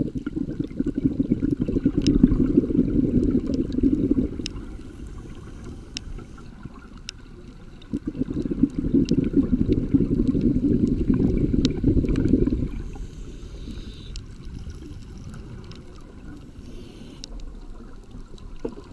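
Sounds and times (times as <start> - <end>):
regulator bubbling underwater: 0.0 - 18.9
low hiss: 3.4 - 8.6, 9.9 - 18.9.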